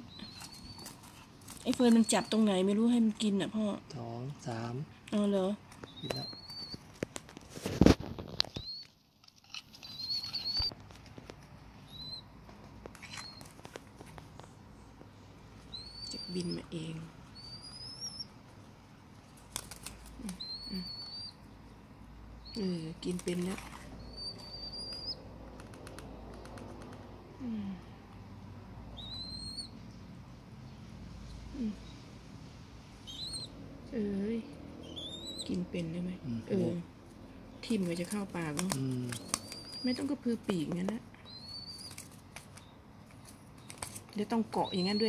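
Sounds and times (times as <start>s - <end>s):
young sparrow cheeping: 0.0s - 1.0s, 1.6s - 2.9s, 5.8s - 6.8s, 8.5s - 8.9s, 9.8s - 10.7s, 11.8s - 12.3s, 13.0s - 13.5s, 15.7s - 18.4s, 20.2s - 21.6s, 22.4s - 25.3s, 29.0s - 29.8s, 33.0s - 33.6s, 34.2s - 36.6s, 37.6s - 42.8s, 43.6s - 45.0s.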